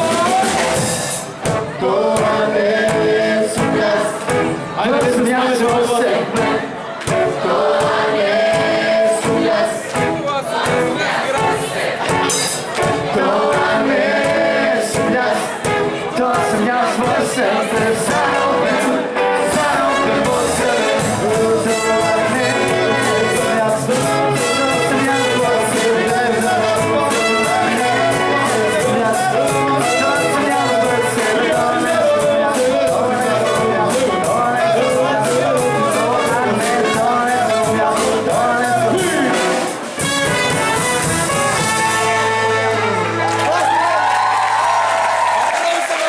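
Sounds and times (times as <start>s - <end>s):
fast drum beat: 0.0s - 3.9s, 10.5s - 42.4s
live band playing upbeat song: 0.0s - 44.1s.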